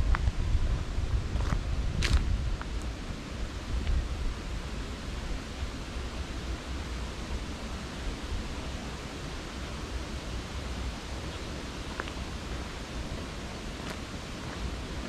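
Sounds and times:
low rumble: 0:00.0 - 0:08.8
hiss-like outdoor background noise: 0:00.0 - 0:15.0.

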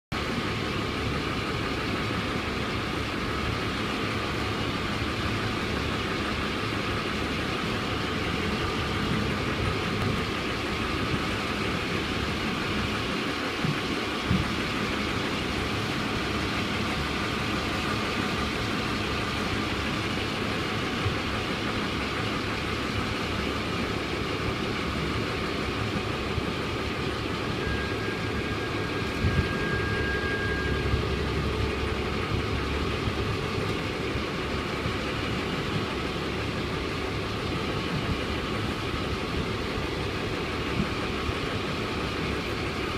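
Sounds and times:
distant engine rumble: 0:00.1 - 0:42.9
wind on microphone: 0:29.1 - 0:29.9.

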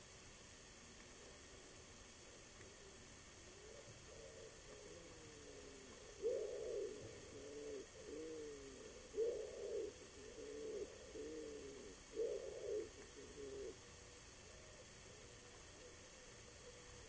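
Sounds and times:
pigeon cooing: 0:02.6 - 0:13.9.

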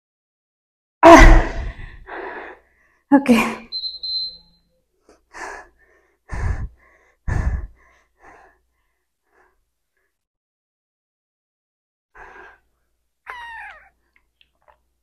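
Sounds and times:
woman breathing hard: 0:01.5 - 0:03.0, 0:05.1 - 0:10.2, 0:12.2 - 0:12.8.

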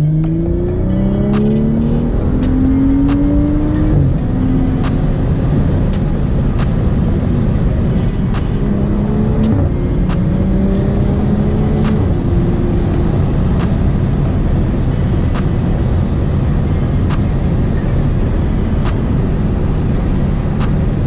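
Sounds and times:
car engine and tyre rumble: 0:00.0 - 0:21.0
music with held notes: 0:00.0 - 0:21.0
sharp clicks: 0:00.2 - 0:21.0.

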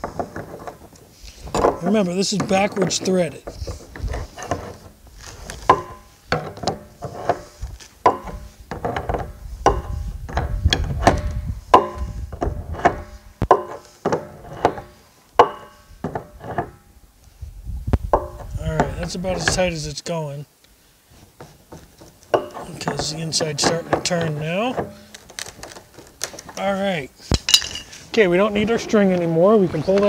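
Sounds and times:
wrench clicking and knocking: 0:05.7 - 0:16.7.

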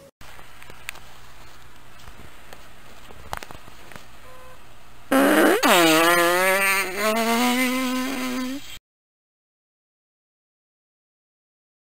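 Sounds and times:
loud buzzy fart: 0:05.1 - 0:08.8.

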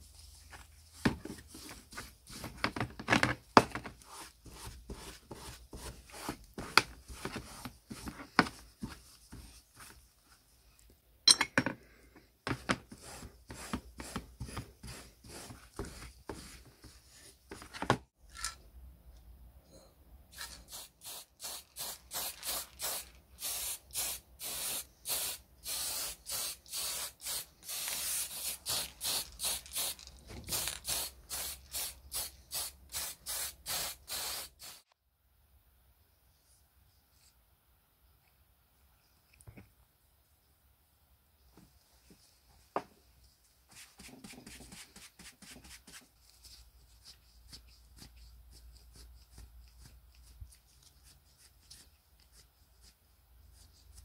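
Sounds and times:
spray paint can shaking: 0:20.7 - 0:31.9.

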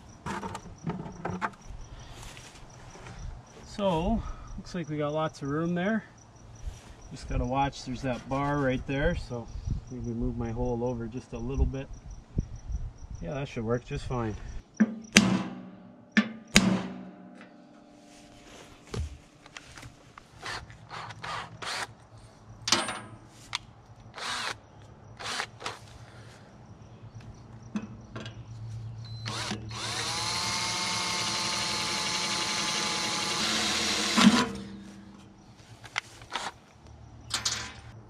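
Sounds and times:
cordless drill drilling steel: 0:24.2 - 0:24.6, 0:25.2 - 0:25.8, 0:29.2 - 0:34.7.

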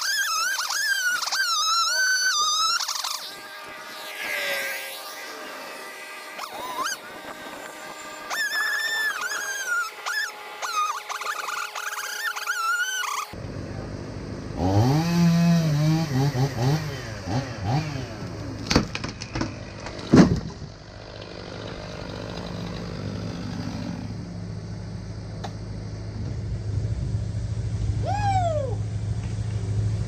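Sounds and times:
chainsaw engine revving: 0:00.0 - 0:13.4, 0:14.4 - 0:24.5
low engine hum: 0:13.3 - 0:30.0.

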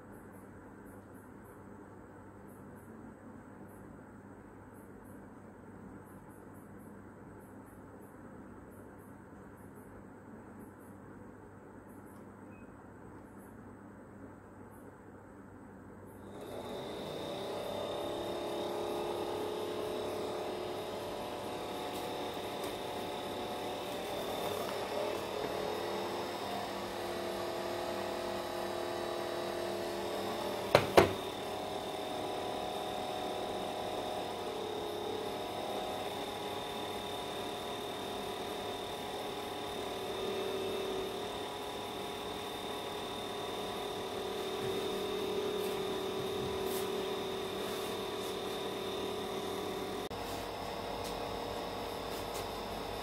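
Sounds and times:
electric fan motor humming: 0:16.2 - 0:53.0.

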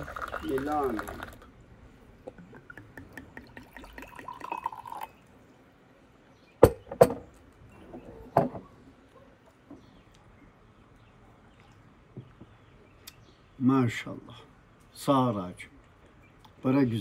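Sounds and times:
liquid pouring into glass mug: 0:00.0 - 0:01.5, 0:02.2 - 0:05.3.

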